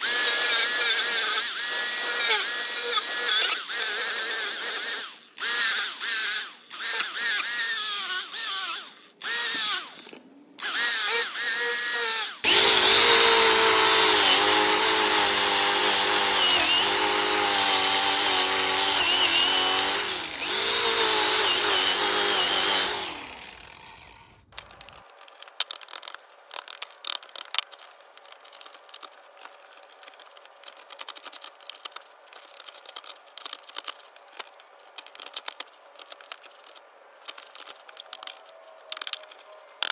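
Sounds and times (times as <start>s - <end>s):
angle grinder whining: 0.0s - 24.6s
scraping wood chips: 24.6s - 39.9s.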